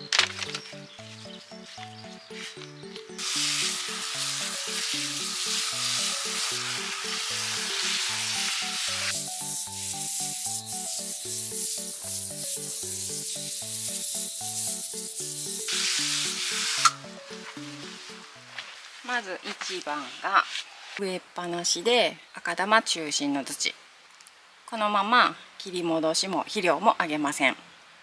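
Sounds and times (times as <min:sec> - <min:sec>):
background music: 0:00.0 - 0:19.5
hose nozzle spraying water: 0:03.1 - 0:17.0.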